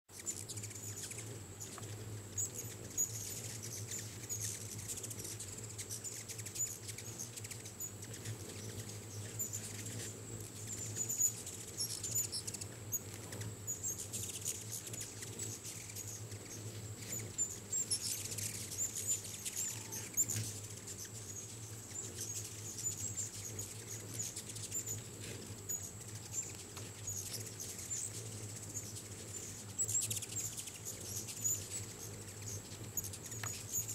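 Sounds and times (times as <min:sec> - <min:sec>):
hummingbird wings whirring: 0:00.1 - 0:33.9
hummingbird chip calls: 0:00.2 - 0:25.0, 0:25.6 - 0:33.9.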